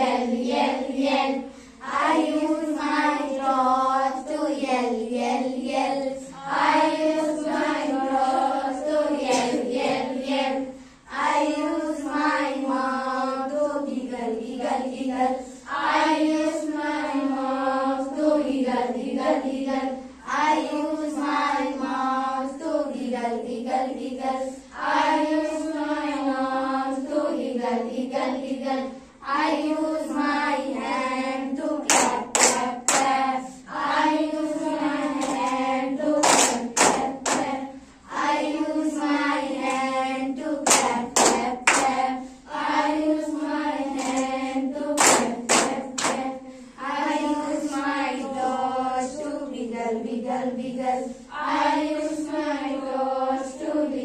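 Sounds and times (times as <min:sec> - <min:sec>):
girls singing in unison: 0:00.0 - 0:54.0
hand claps: 0:31.8 - 0:33.2, 0:35.2 - 0:35.6, 0:36.2 - 0:37.6, 0:40.6 - 0:42.0, 0:44.0 - 0:44.3, 0:45.0 - 0:46.3.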